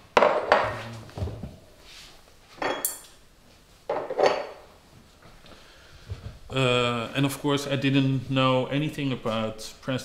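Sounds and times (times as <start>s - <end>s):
glass cup and saucer clattering: 2.6s - 3.2s, 3.9s - 4.6s
high ringing glass clink: 2.6s - 3.2s.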